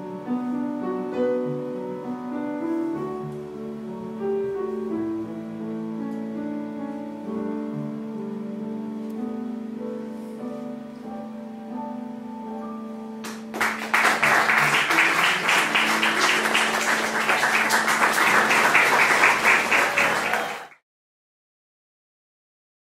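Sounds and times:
slow instrumental music: 0:00.0 - 0:20.4
audience applauding: 0:13.2 - 0:20.8.

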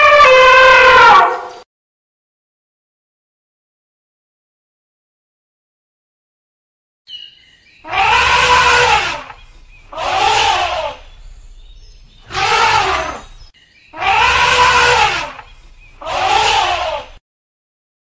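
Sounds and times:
elephant trumpeting: 0:00.0 - 0:01.5, 0:07.8 - 0:11.2, 0:12.2 - 0:17.2.

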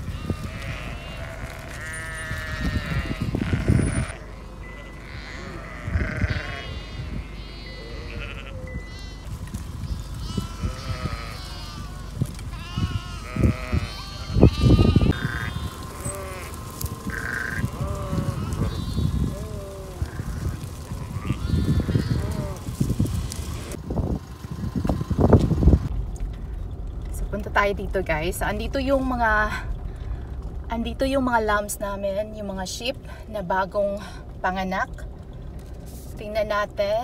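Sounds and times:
sheep and lambs bleating: 0:00.0 - 0:09.3, 0:10.0 - 0:23.8
loud low rumbles: 0:00.0 - 0:37.0.

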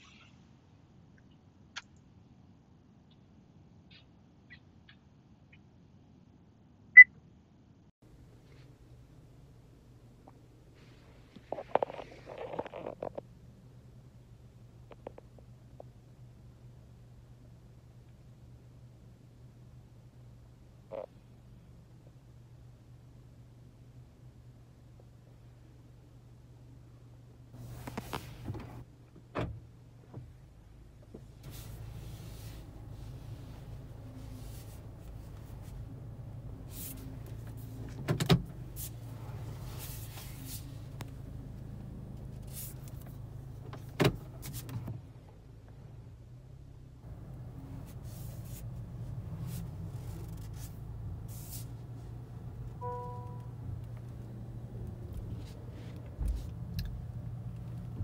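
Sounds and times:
car cabin low hum: 0:27.6 - 0:58.0
electronic chime: 0:52.8 - 0:53.4.

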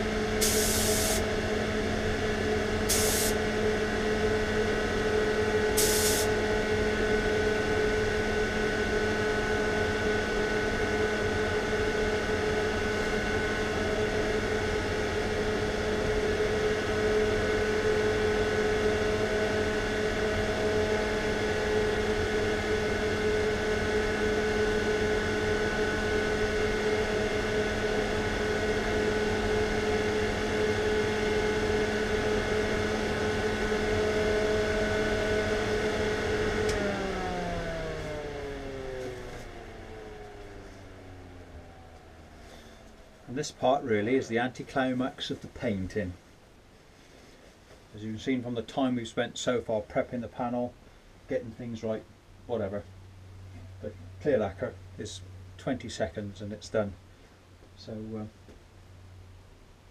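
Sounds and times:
machinery humming: 0:00.0 - 0:45.8
spray gun hissing: 0:00.4 - 0:01.2, 0:02.9 - 0:03.4, 0:05.8 - 0:06.3.

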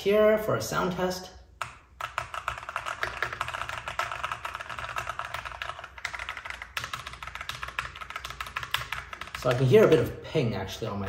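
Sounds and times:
mechanical keyboard typing: 0:01.6 - 0:10.0.

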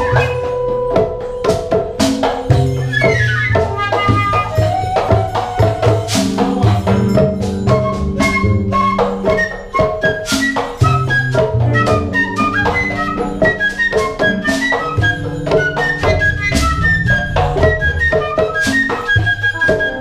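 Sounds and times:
drums beating dense rhythm: 0:00.0 - 0:20.0
flute melody: 0:00.0 - 0:20.0
winds and strings: 0:11.6 - 0:20.0
low sustained bass: 0:15.3 - 0:18.2.

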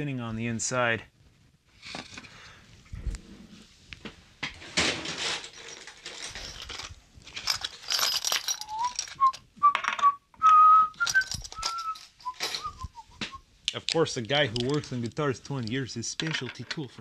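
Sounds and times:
metal tools clinking and rattling: 0:04.7 - 0:10.0, 0:11.0 - 0:12.9, 0:13.8 - 0:16.9
person whistling a tune: 0:08.6 - 0:13.4.

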